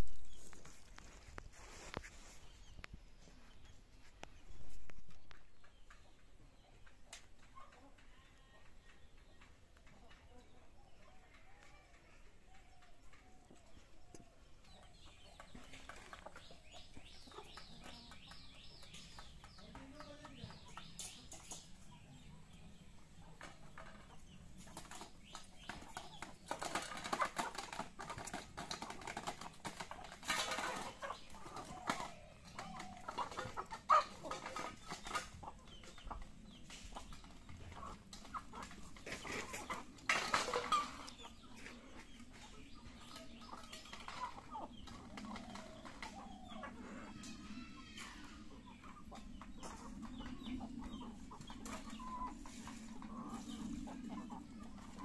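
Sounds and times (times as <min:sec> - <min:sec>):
chickens clucking: 0:00.0 - 0:55.0
small clicks and scuffs: 0:00.3 - 0:06.0.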